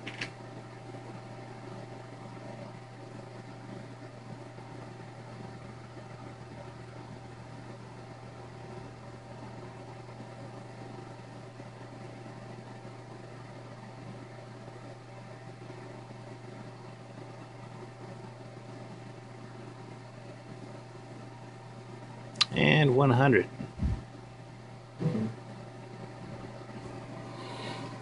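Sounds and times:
faint constant whine: 0:00.0 - 0:28.0
machine hum and hiss: 0:00.0 - 0:28.0.

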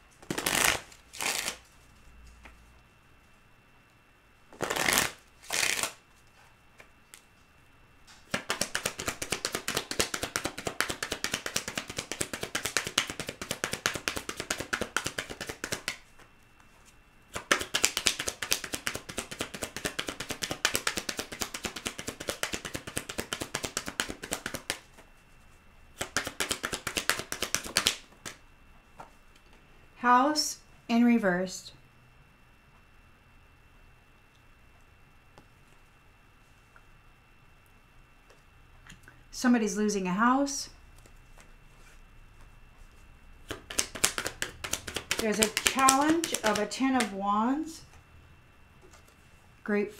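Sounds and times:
cards being shuffled: 0:00.2 - 0:02.6, 0:04.5 - 0:06.0, 0:08.2 - 0:25.1, 0:26.0 - 0:28.4, 0:43.4 - 0:47.2.

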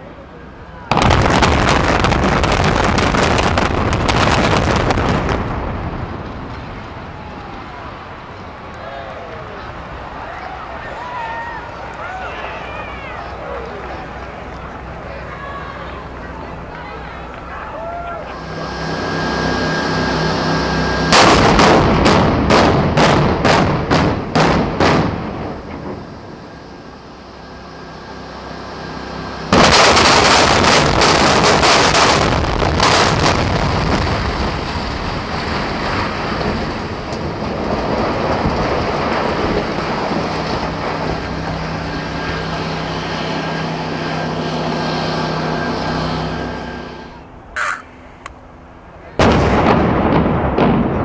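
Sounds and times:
low hum: 0:00.0 - 0:51.0
explosive bangs echoing: 0:00.9 - 0:06.7, 0:21.1 - 0:26.4, 0:29.5 - 0:40.1, 0:49.2 - 0:51.0.

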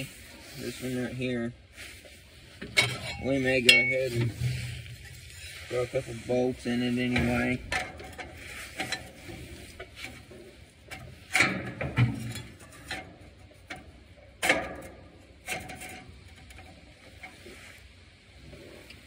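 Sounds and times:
metal clicks and knocks: 0:10.9 - 0:17.3.

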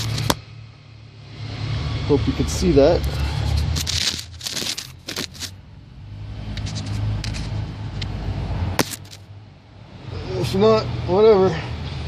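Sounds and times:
rustling and scraping handling: 0:00.0 - 0:00.4, 0:03.0 - 0:05.6, 0:06.4 - 0:07.7, 0:08.8 - 0:09.3.

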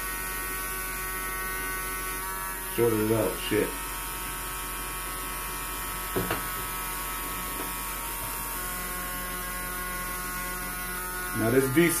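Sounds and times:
electrical buzz of motor: 0:00.0 - 0:12.0.

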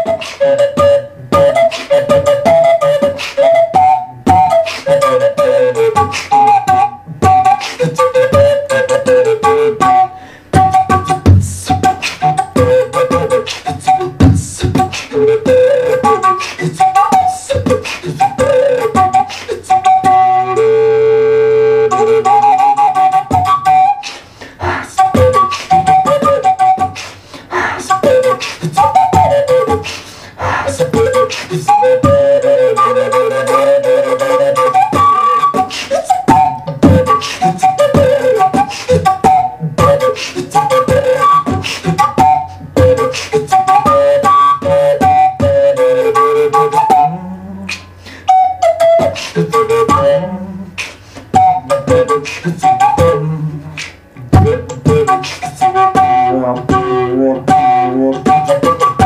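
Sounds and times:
beatboxing clicks and pops: 0:00.0 - 0:20.2, 0:21.9 - 0:59.0
wooden flute melody: 0:00.0 - 0:59.0.

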